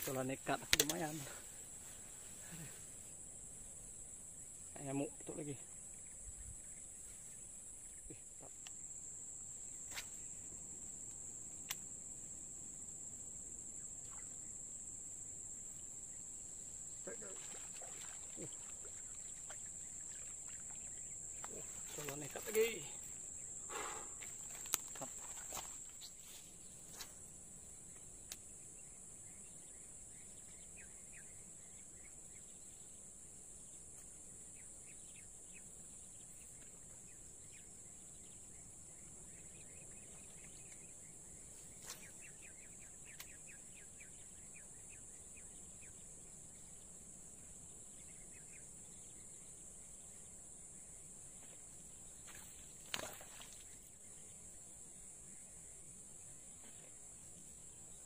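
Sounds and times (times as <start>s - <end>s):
light clicks: 0.6s - 1.0s
faint bird twitters: 13.8s - 14.6s, 16.9s - 27.1s, 34.5s - 50.3s.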